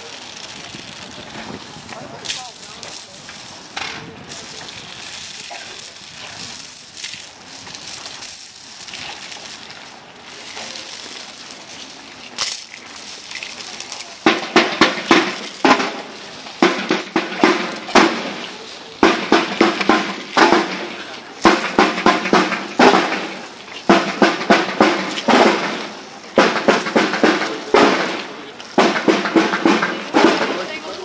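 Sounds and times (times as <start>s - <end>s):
walking crowd noise: 0.0s - 31.0s
marching snare drums: 14.2s - 31.0s.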